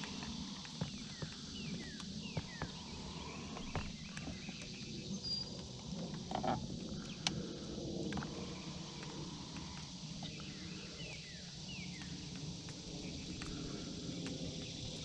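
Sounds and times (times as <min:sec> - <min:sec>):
bird chirps: 0:00.8 - 0:05.7.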